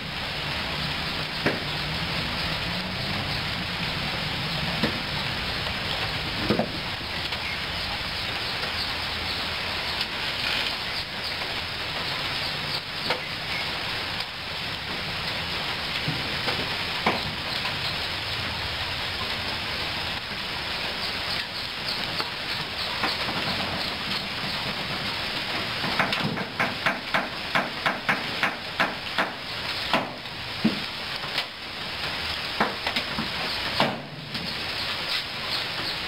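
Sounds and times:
rushing background noise: 0.0 - 36.0
sharp knocks on metal: 25.8 - 30.8.

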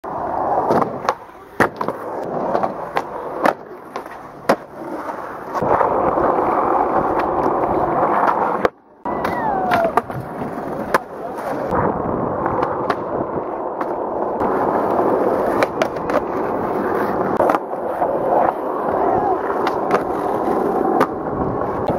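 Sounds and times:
skateboard wheels rolling: 0.0 - 21.9
skateboard clacking on ground: 0.1 - 21.9.

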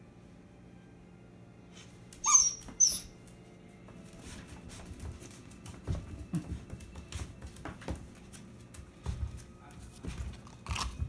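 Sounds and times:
puppy yipping: 2.2 - 3.2.

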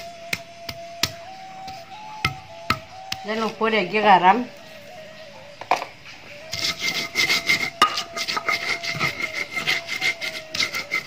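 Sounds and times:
grinding stone grating on stone: 6.4 - 11.0.

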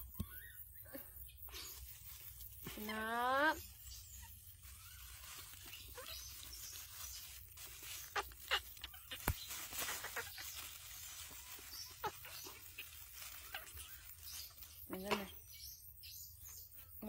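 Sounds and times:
baby monkey calls: 2.7 - 15.4.

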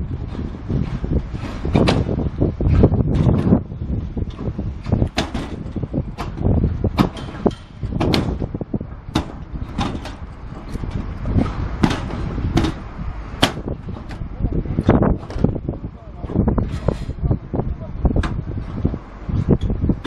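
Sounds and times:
low rumble: 0.0 - 20.0
steel roof sheets popping underfoot: 0.2 - 3.6, 4.3 - 15.6.

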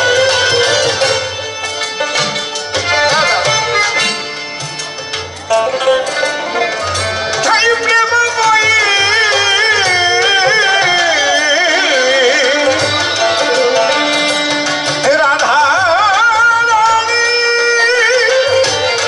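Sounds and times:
instrumental accompaniment: 0.0 - 19.0
man singing with vibrato: 6.0 - 19.0.

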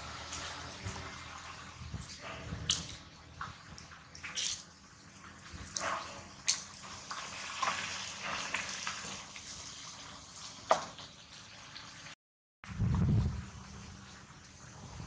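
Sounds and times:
low rumble: 12.6 - 14.2.

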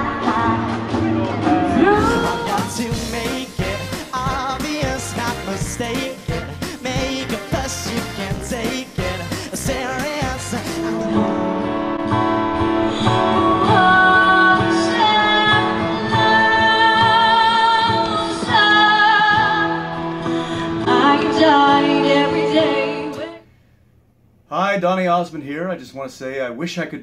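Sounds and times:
woman singing: 0.0 - 3.9, 12.8 - 23.4
guitar accompaniment: 0.0 - 23.4.

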